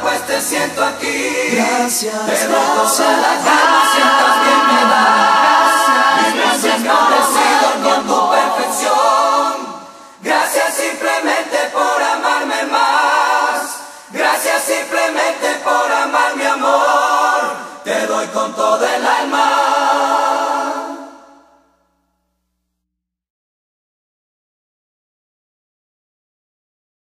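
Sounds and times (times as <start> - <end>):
choir singing harmonies: 0.0 - 21.7.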